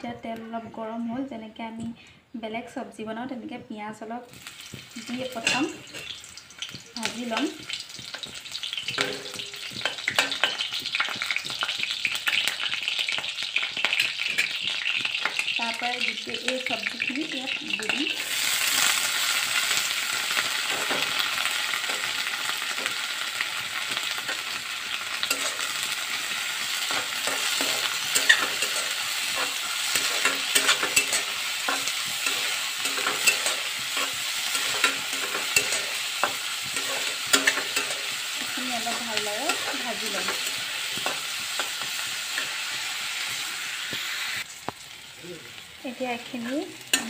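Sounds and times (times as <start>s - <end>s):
vegetables sizzling in hot oil: 4.2s - 47.0s
spatula scraping pan: 19.6s - 44.1s.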